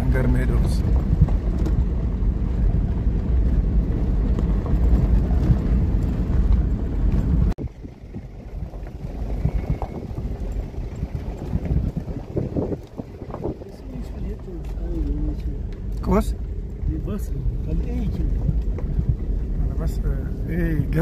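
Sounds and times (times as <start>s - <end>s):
wind noise on microphone: 0.0s - 14.5s
vehicle driving on gravel: 0.0s - 21.0s.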